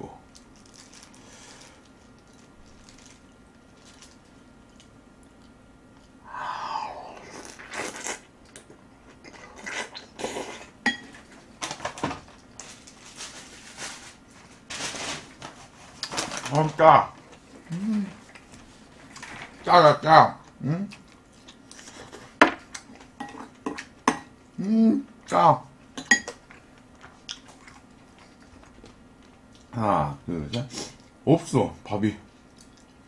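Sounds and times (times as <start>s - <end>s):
person chewing food: 26.3s - 29.7s, 32.3s - 33.0s.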